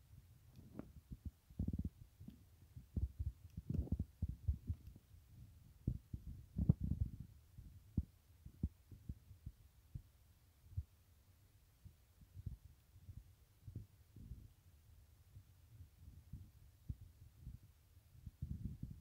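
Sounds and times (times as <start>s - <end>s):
microphone handling thumps: 5.9s - 7.2s.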